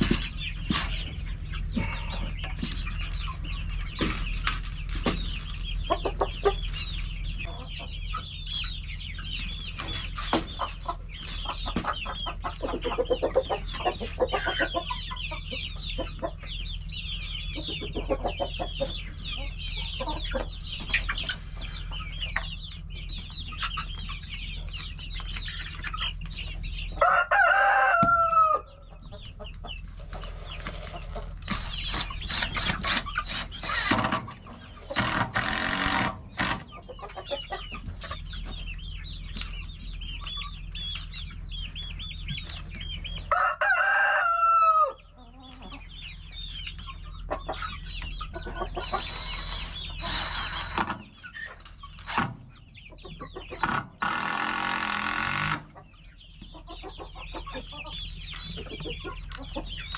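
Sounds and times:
chickens clucking: 0.0 - 59.9
rooster crowing: 27.0 - 28.8, 43.3 - 45.1.

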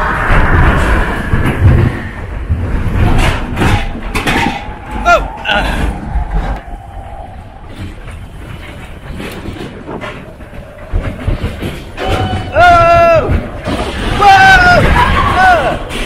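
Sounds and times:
roller coaster car rumbling and rattling: 0.0 - 16.0.

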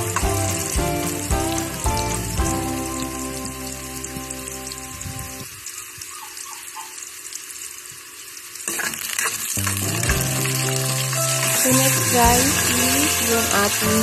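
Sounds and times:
food sizzling in hot oil: 0.0 - 14.0.

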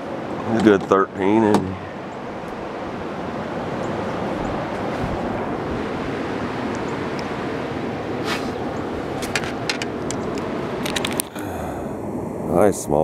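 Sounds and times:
steady rushing outdoor noise: 0.0 - 13.0
camera handling clicks and knocks: 9.2 - 11.3.

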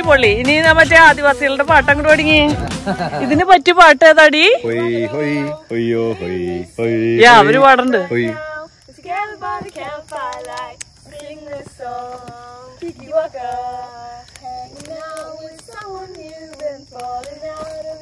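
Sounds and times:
children singing a folk song: 4.7 - 18.0.

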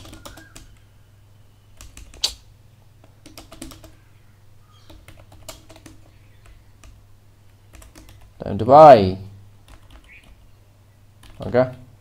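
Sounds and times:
keyboard typing clicks: 0.0 - 0.9, 1.7 - 2.4, 3.0 - 4.0, 4.8 - 8.4, 9.6 - 10.4, 11.2 - 11.5.

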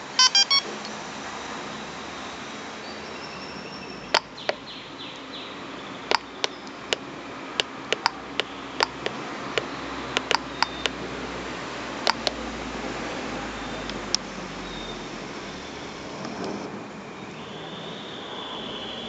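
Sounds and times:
push buttons clicking: 6.1 - 7.0, 7.6 - 11.0, 12.1 - 12.4.

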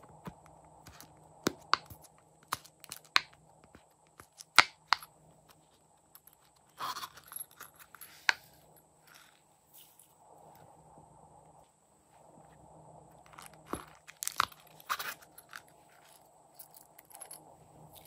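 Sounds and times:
zipper opening: 14.6 - 16.2.

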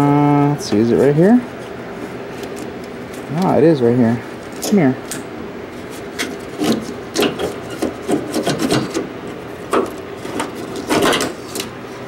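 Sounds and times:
wires rubbing and scraping: 5.7 - 12.0.

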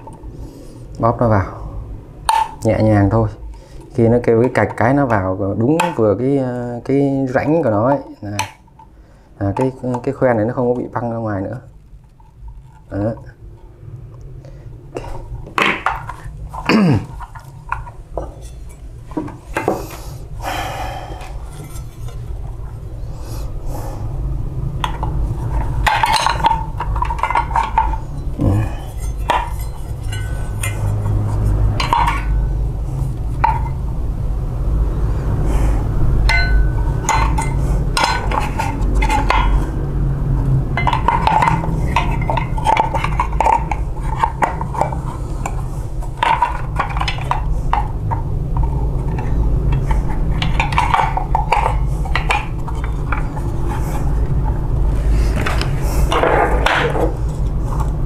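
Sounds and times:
steady low hum: 0.0 - 58.0
small parts clinking and clicking: 24.8 - 33.8, 36.2 - 39.8, 40.7 - 54.6.

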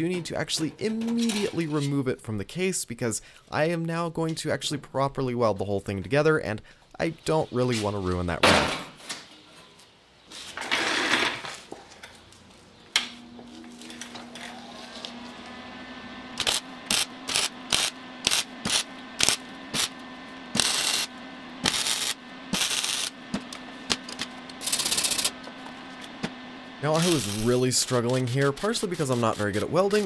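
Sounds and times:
welder humming: 12.9 - 30.0
crackling welding arc: 16.4 - 30.0.

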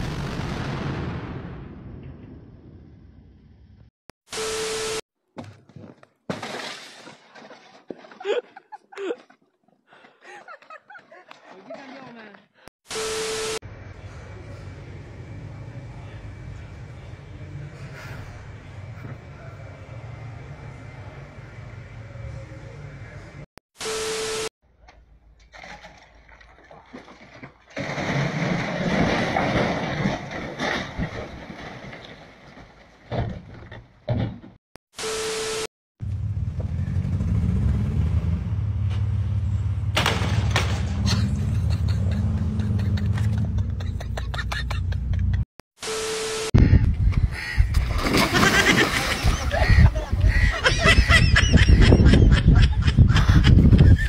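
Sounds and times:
snow and ice crashing off roof: 27.8 - 32.5.

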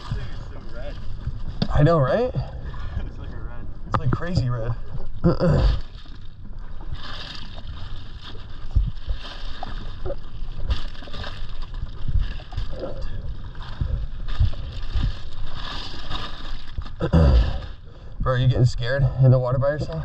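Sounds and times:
water sloshing: 0.0 - 18.2
insulated bag and ice rustling: 6.9 - 17.8.

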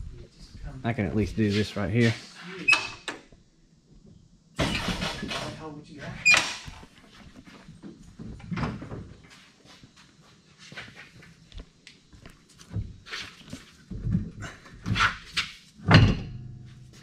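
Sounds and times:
metal clunks and knocks: 15.8 - 16.6.

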